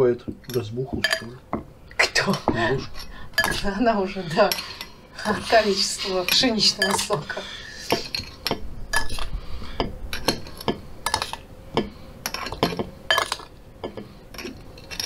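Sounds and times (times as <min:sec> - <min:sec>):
spoon clinking against dish: 0:00.5 - 0:01.4, 0:06.3 - 0:07.2.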